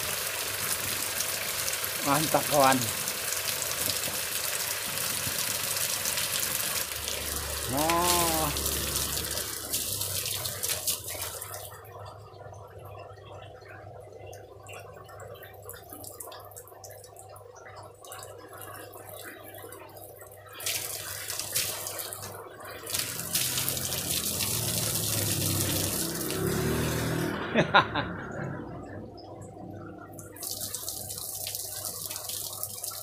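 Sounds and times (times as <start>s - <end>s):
water spraying onto wet planks: 0.0s - 11.8s, 20.6s - 27.4s, 30.3s - 33.0s
low steady motor hum: 0.0s - 32.7s.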